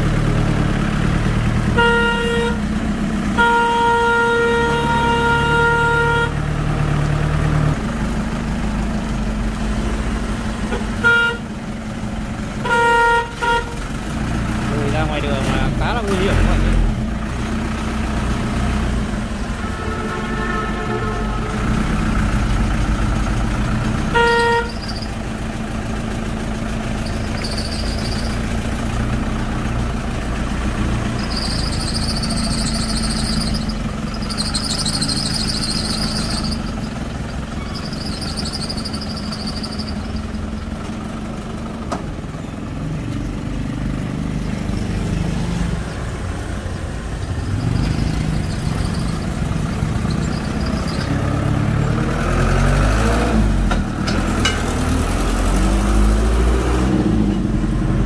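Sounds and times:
truck engine droning: 0.0s - 58.0s
horn toot: 1.7s - 2.7s, 3.4s - 6.4s, 10.7s - 11.5s, 12.6s - 13.8s, 19.5s - 22.0s, 24.1s - 24.9s
high-pitched squeal: 24.5s - 25.2s, 26.9s - 28.6s, 31.0s - 40.4s, 47.2s - 51.6s.

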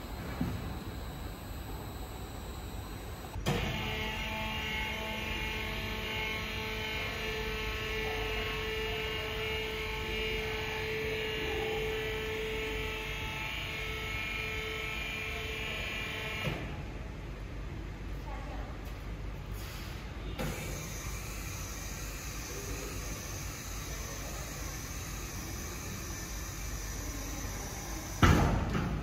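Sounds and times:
hydraulic pump motor whining: 0.0s - 8.0s.

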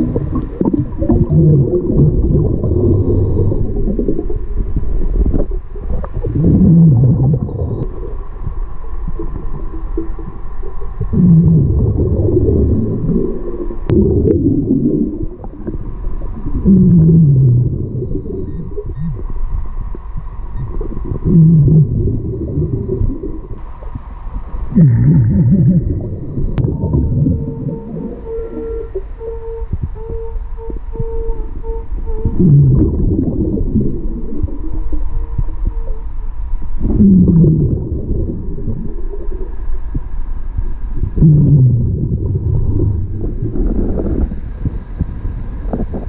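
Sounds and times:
gurgling exhaled bubbles: 0.0s - 29.2s, 32.2s - 35.9s, 36.8s - 40.1s, 41.0s - 46.0s
diver breathing through regulator: 0.6s - 5.4s, 6.3s - 9.9s, 42.1s - 45.9s.

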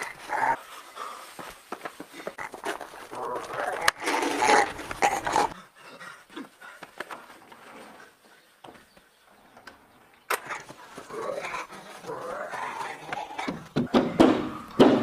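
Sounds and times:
man growling and panting: 0.0s - 1.5s, 2.1s - 7.0s, 10.5s - 14.8s.

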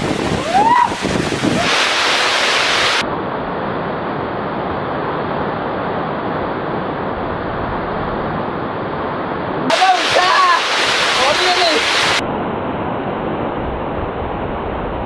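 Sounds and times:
waterfall rushing: 0.0s - 3.0s, 9.7s - 12.2s.

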